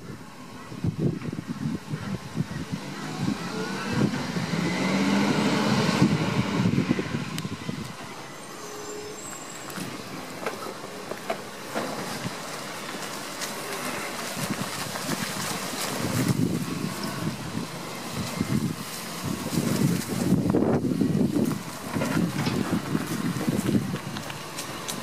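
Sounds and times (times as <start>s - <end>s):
wind buffeting microphone: 0.0s - 8.6s, 14.2s - 25.0s
rubbish truck running: 0.0s - 25.0s
street noise: 0.0s - 25.0s.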